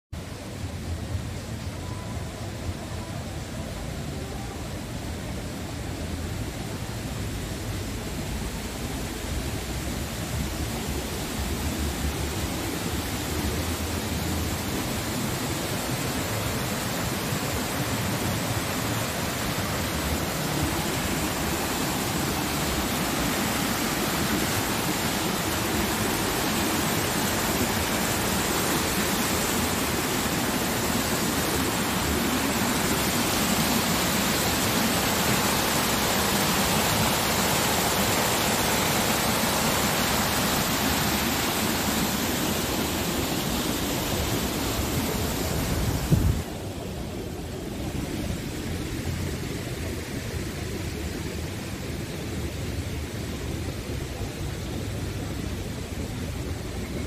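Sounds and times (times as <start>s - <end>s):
white water rushing: 0.2s - 57.0s.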